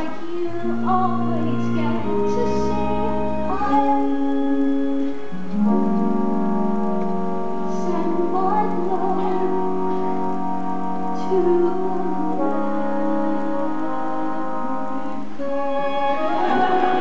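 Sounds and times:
orchestra playing sustained chords: 0.0s - 17.0s
wavering melody line: 15.4s - 17.0s.

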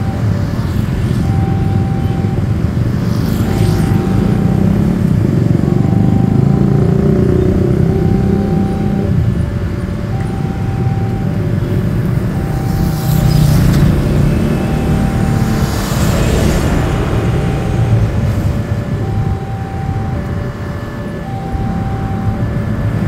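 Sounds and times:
traffic rumble: 0.0s - 23.0s
two-tone crossing warning alarm: 0.0s - 23.0s.

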